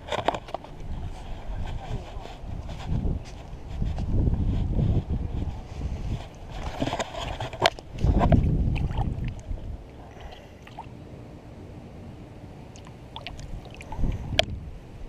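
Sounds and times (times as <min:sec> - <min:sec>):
water splashing and sloshing: 0:06.2 - 0:11.0, 0:12.7 - 0:14.6.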